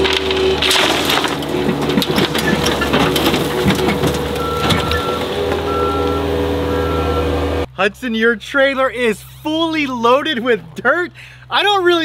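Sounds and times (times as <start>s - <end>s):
dirt pouring into metal trailer: 0.0s - 5.7s
skid steer engine running: 0.0s - 7.7s.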